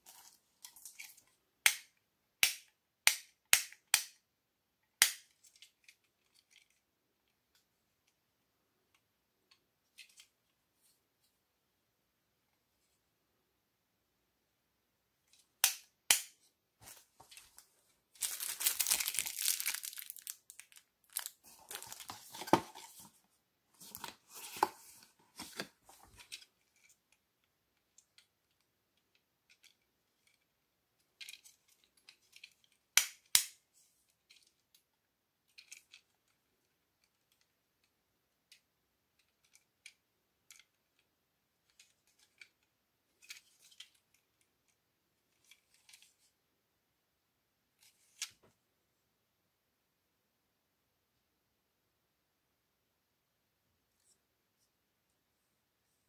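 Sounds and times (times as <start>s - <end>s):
packaging rustling: 16.8s - 23.2s.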